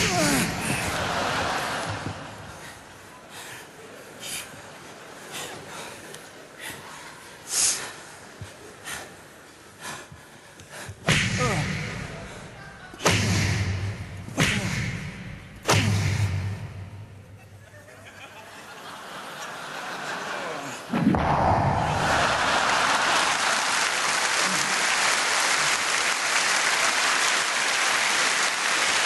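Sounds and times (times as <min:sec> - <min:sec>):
loud thuds ringing in a hall: 0:13.0 - 0:17.6.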